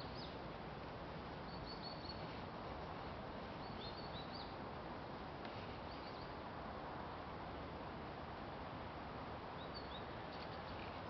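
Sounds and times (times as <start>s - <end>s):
small bird chirping: 1.5s - 2.2s.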